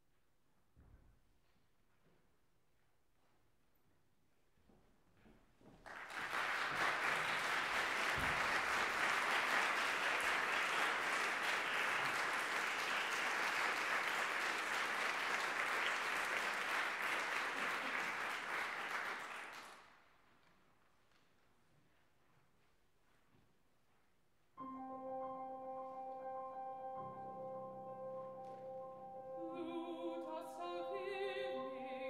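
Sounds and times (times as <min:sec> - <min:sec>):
audience applauding: 0:05.8 - 0:20.0.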